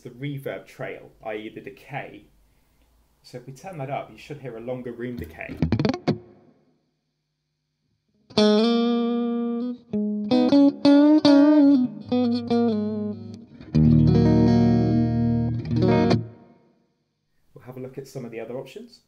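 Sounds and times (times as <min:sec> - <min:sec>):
electric guitar with reverb: 0:05.2 - 0:06.5, 0:08.2 - 0:16.6.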